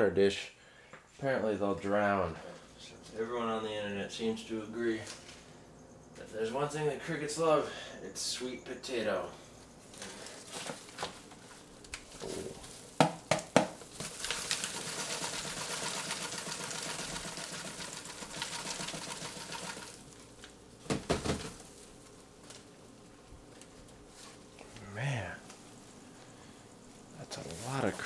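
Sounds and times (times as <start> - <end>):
crickets rattling and rustling: 9.4 - 28.0
cardboard box knocks: 20.9 - 21.6.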